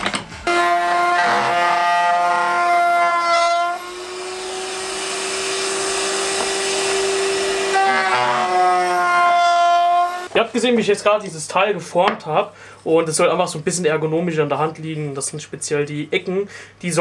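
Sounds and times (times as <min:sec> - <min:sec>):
router whining through wood: 0:00.5 - 0:10.3.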